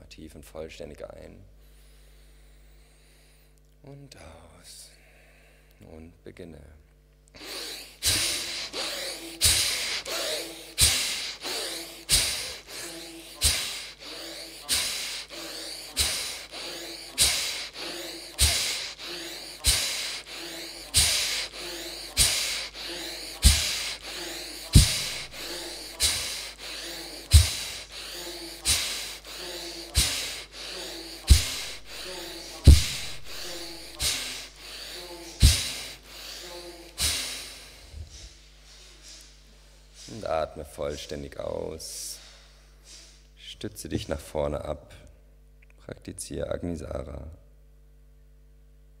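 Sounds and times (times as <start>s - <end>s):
person breathing forcefully: 7.4s - 40.6s, 42.0s - 43.2s.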